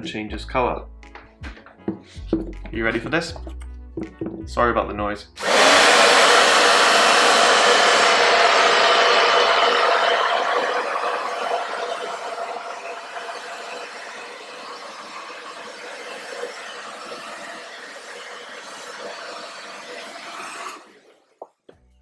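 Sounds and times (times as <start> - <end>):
hair dryer blowing: 5.4 - 21.0.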